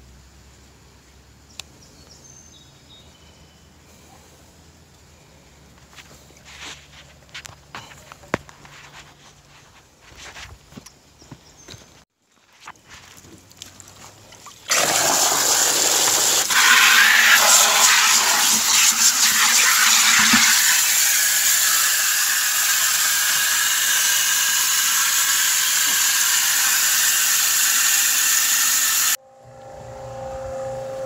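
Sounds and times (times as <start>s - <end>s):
hose water splashing into bucket: 13.6s - 29.2s.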